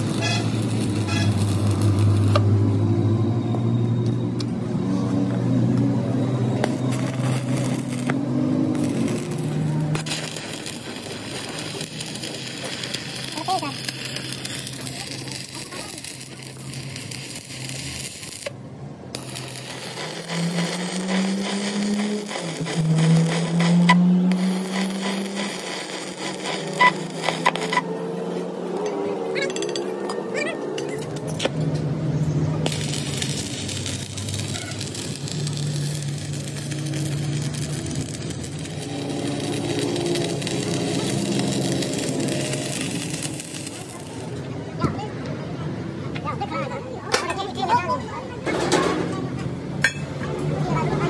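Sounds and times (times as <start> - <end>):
welding arc crackling: 0.0 - 3.0, 6.5 - 28.8, 32.6 - 44.6.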